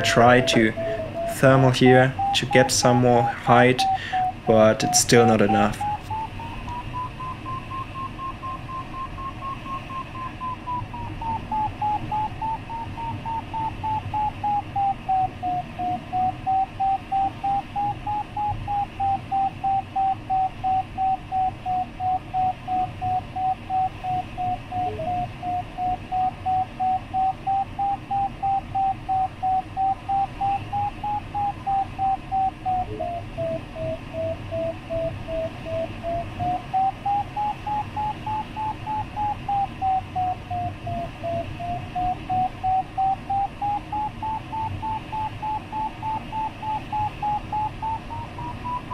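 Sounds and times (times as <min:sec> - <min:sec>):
faint rush of air: 0:00.0 - 0:08.0
variometer beeping: 0:00.0 - 0:48.9.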